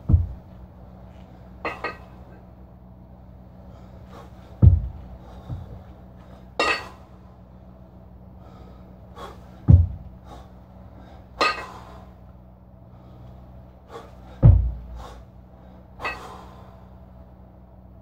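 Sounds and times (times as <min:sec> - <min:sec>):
dull low thumps: 0:00.0 - 0:00.8, 0:04.3 - 0:06.1, 0:09.5 - 0:10.4, 0:14.3 - 0:15.2
man exhaling forcefully: 0:13.9 - 0:15.2.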